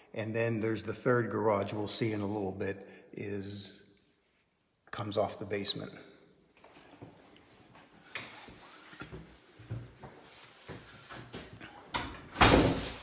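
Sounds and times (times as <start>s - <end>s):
footsteps indoors: 6.5s - 13.0s.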